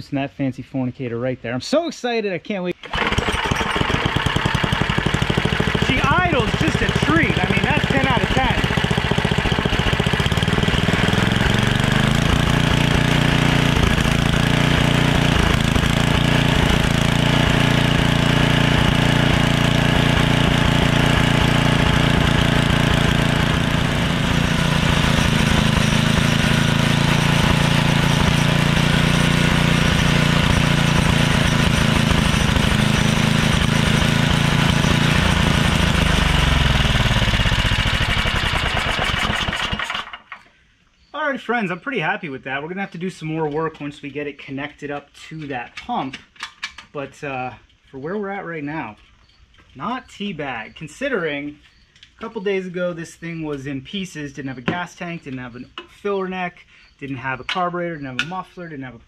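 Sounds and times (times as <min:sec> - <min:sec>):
snowblower engine idling: 0:02.8 - 0:40.5.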